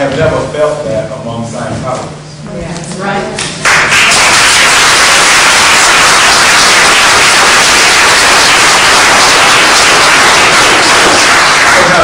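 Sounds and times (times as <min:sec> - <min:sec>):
audience applauding: 0:03.6 - 0:12.0.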